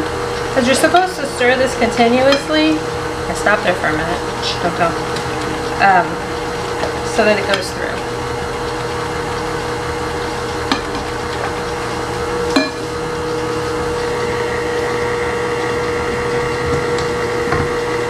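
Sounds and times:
steady hum: 0.0s - 18.0s
whisk clinking against glass bowl: 12.5s - 12.9s.

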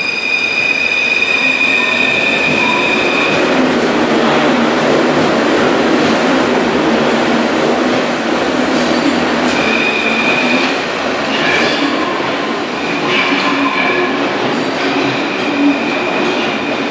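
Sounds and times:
high wheel squeal: 0.0s - 3.6s, 9.5s - 10.7s
train wheels rumbling on rails: 0.0s - 16.9s.

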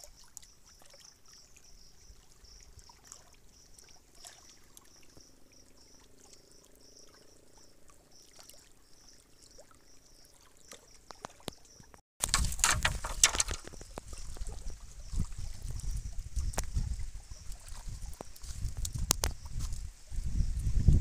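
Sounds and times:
water lapping: 0.0s - 20.2s
footsteps on rock: 12.2s - 14.1s.

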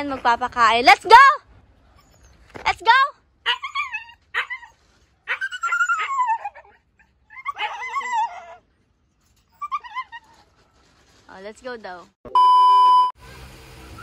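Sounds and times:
puppies whining and yipping: 1.9s - 2.4s, 3.5s - 10.6s.

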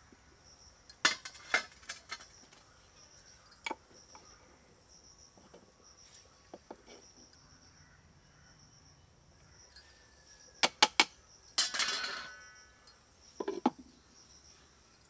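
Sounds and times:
insects chirping: 0.0s - 15.0s
utensils tapping clay pots: 0.9s - 2.3s.

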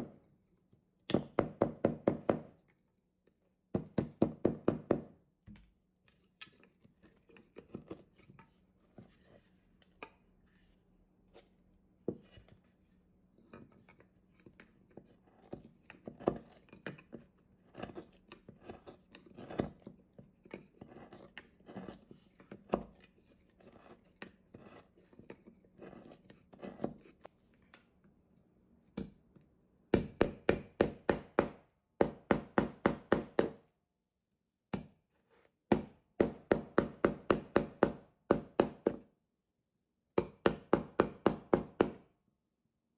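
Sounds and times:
gouge scraping wood: 17.7s - 19.9s, 20.6s - 27.3s.

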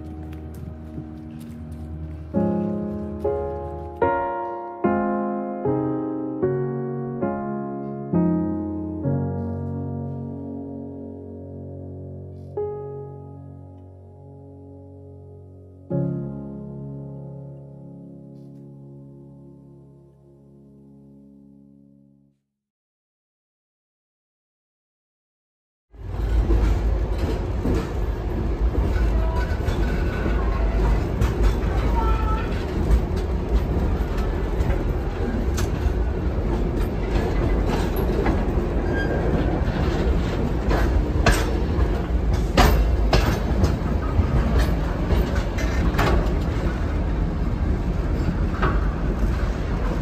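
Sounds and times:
wheels and couplings clanking: 0.0s - 4.6s, 26.0s - 50.0s
train carriages rumbling on track: 26.0s - 50.0s.

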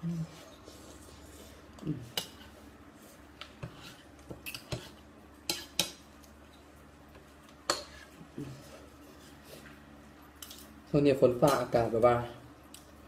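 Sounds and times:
cutlery scraping a bowl: 0.5s - 2.6s, 3.4s - 6.0s, 7.7s - 9.4s.

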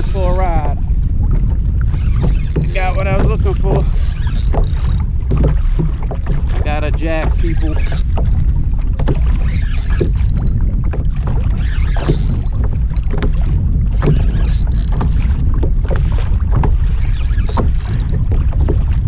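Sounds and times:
water lapping at boat hull: 0.0s - 19.0s
wind buffeting microphone: 0.0s - 19.0s
short knocks: 2.0s - 8.4s.

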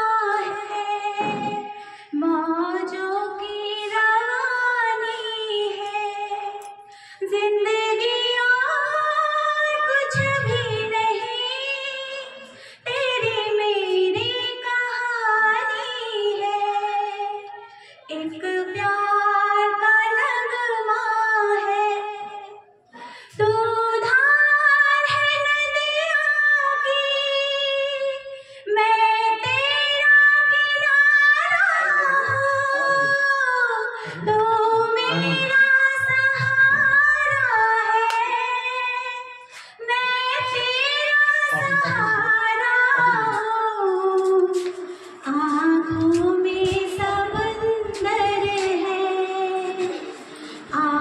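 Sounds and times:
woman singing unaccompanied: 0.0s - 22.7s, 23.3s - 44.6s, 45.2s - 51.0s.

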